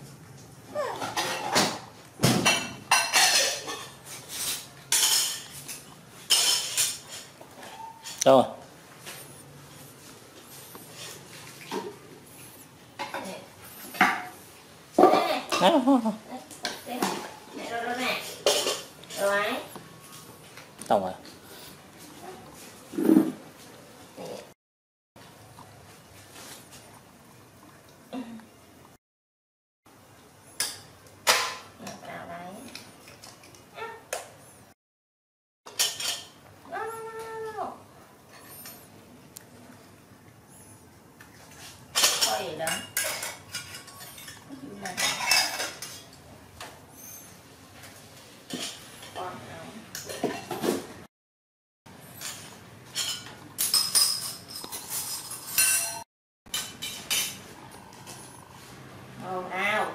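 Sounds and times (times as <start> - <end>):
metal spoon clinking on plate: 52.2 - 57.4.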